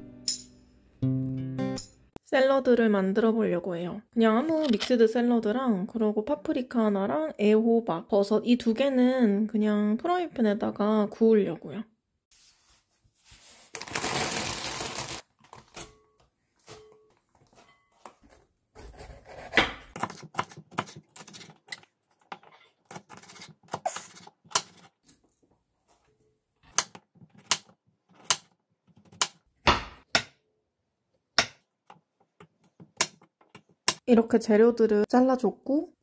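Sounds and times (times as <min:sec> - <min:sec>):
knife chopping on wooden board: 0:18.8 - 0:21.0, 0:26.8 - 0:30.4, 0:31.4 - 0:31.6.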